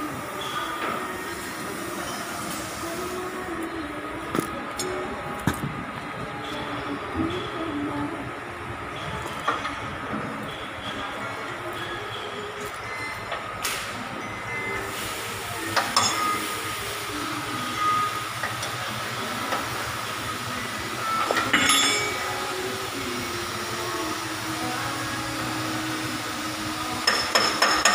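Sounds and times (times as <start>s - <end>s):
steel tools clinking: 15.7s - 16.5s, 21.2s - 22.4s.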